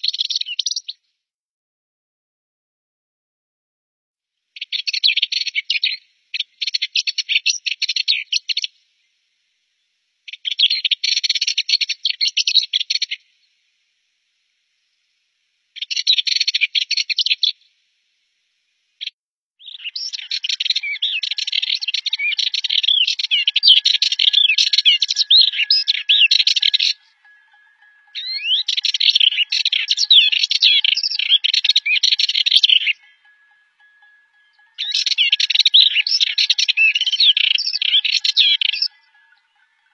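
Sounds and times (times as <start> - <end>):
warbler rattling song: 19.6 - 39.9
warbler scratchy chattering song: 19.6 - 39.9.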